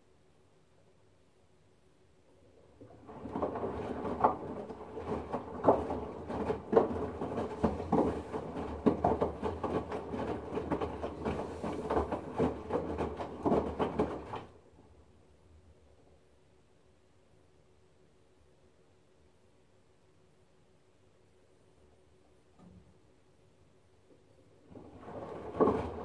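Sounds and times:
water sloshing in washing machine: 0:02.5 - 0:14.7, 0:24.6 - 0:26.0
wet laundry slapping in drum: 0:02.8 - 0:14.6, 0:24.7 - 0:26.0.

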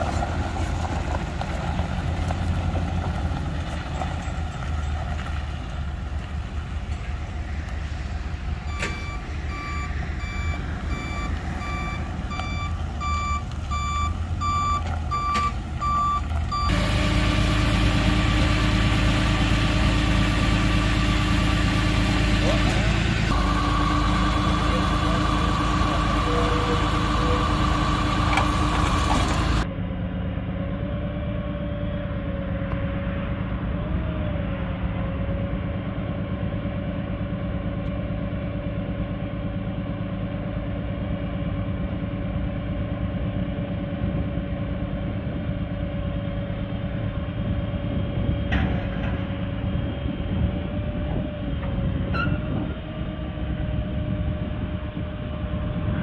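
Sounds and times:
diesel engine idling: 0:00.0 - 0:31.0, 0:31.7 - 0:52.0
thin steady whine: 0:20.8 - 0:29.6.

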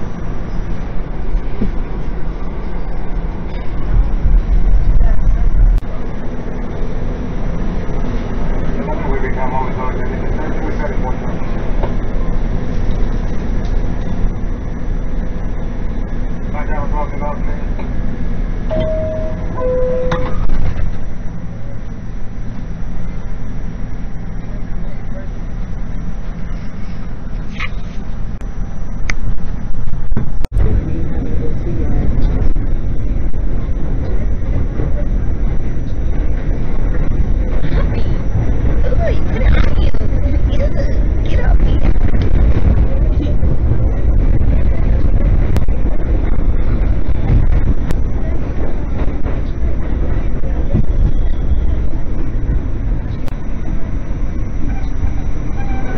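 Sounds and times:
train car low rumble: 0:00.0 - 0:55.9
two-note door chime: 0:18.7 - 0:20.4.

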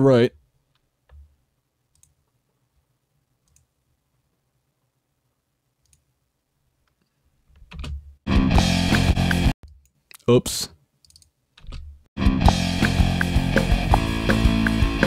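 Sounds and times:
faint mouse clicks: 0:01.9 - 0:02.2, 0:03.4 - 0:03.7, 0:05.8 - 0:06.1
band music playing back: 0:12.2 - 0:15.0.

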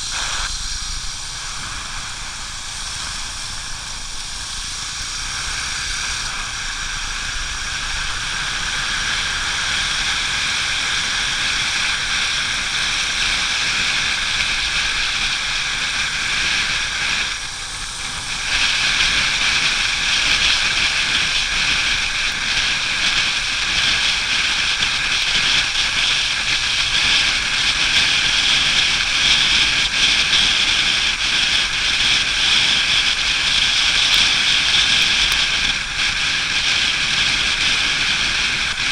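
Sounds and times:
motorcycle on wet road: 0:00.0 - 0:38.9.

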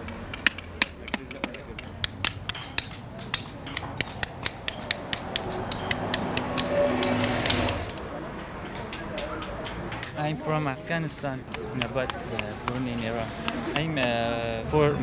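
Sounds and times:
hammer tapping chisel on stone: 0:00.0 - 0:08.1, 0:11.4 - 0:14.3.

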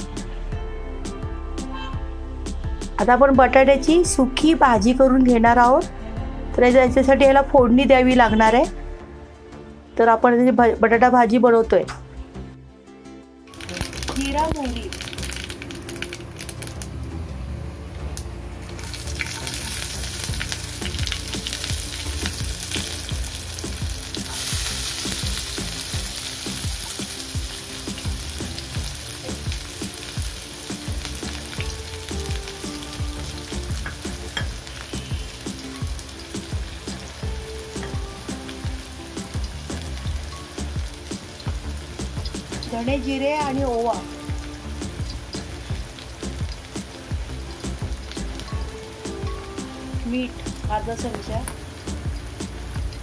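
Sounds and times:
seeds sizzling in hot oil: 0:13.5 - 0:17.0, 0:18.1 - 0:53.0
onion frying in oil: 0:13.5 - 0:17.3, 0:18.0 - 0:53.0.

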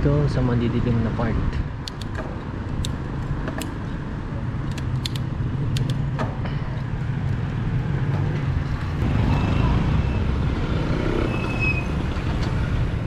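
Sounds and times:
road rumble: 0:00.0 - 0:13.0
wind: 0:00.0 - 0:13.0
bike clicks and rattles: 0:01.8 - 0:03.9, 0:04.6 - 0:09.0.

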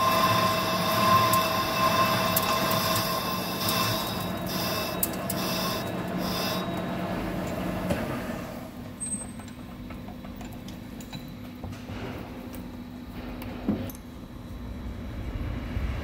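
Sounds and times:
lathe spinning whir: 0:00.0 - 0:08.8.

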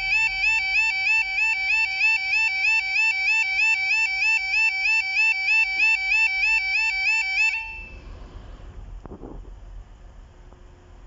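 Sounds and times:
two-tone level crossing alarm: 0:00.0 - 0:08.0.

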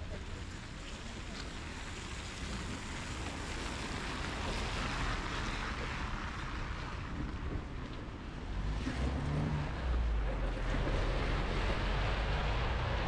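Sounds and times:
tyres hissing on wet road: 0:00.0 - 0:07.8.

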